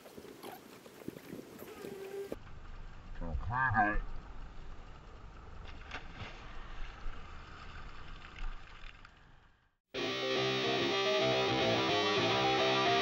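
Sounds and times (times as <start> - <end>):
low steady rumble: 2.4 - 9.6
music: 10.0 - 13.0.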